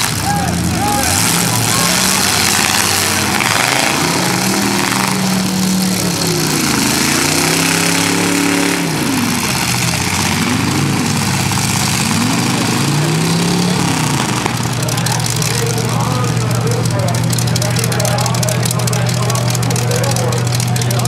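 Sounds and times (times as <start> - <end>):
car engines revving: 0.0 - 21.0
loud exhaust din: 0.0 - 21.0.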